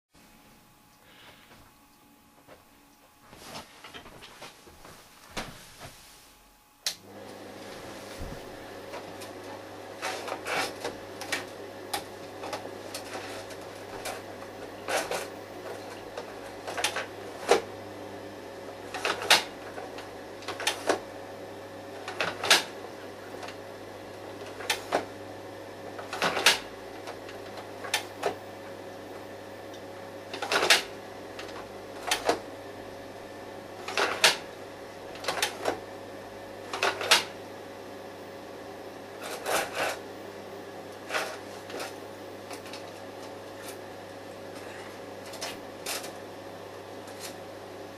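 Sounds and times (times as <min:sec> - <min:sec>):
projector fan humming: 0:00.2 - 0:47.9.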